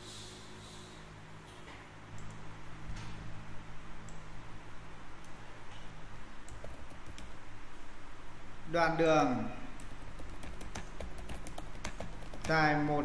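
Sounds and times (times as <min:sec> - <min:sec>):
low electrical hum: 0:00.0 - 0:13.0
computer mouse clicks: 0:02.2 - 0:02.4, 0:06.4 - 0:07.4, 0:09.8 - 0:12.6.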